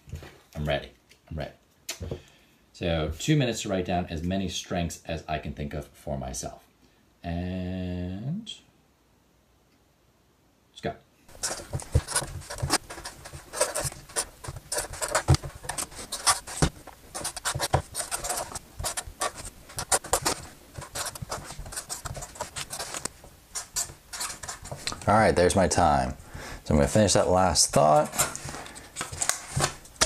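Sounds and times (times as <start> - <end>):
pen scratching on paper: 11.3 - 24.9
taps and paper rustles: 11.3 - 25.1, 26.9 - 30.0.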